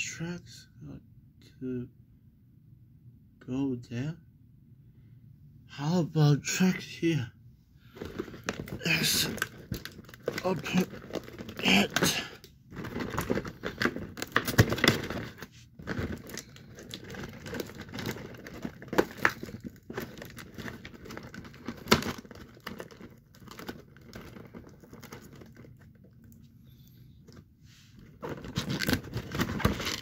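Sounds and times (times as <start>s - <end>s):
cardboard packaging tearing and rustling: 7.9s - 25.9s, 28.0s - 30.0s.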